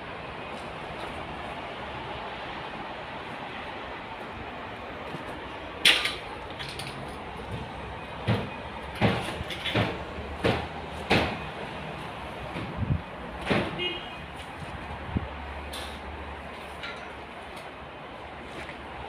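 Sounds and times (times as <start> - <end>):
sharp knocks: 8.2 - 11.4, 13.4 - 13.8.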